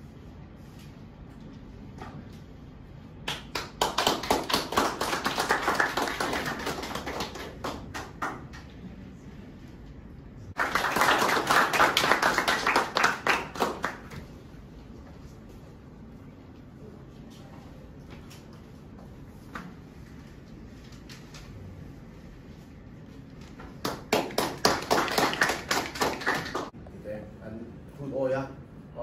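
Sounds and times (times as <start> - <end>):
small group clapping: 3.2 - 8.9, 10.5 - 14.4, 23.6 - 26.8.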